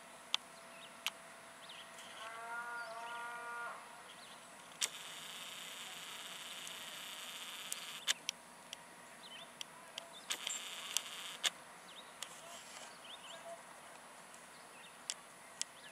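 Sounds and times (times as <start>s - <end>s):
camera clicks: 4.7s - 8.4s, 10.3s - 11.6s.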